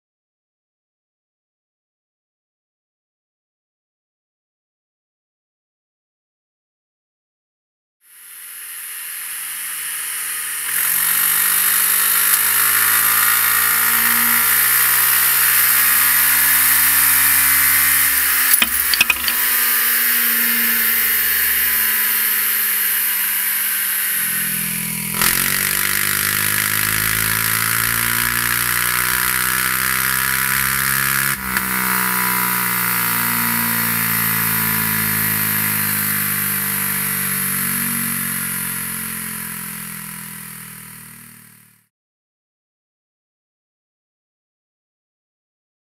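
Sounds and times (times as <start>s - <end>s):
motorcycle engine running: 11.0s - 19.5s, 22.1s - 41.9s
clicks: 18.5s - 19.4s.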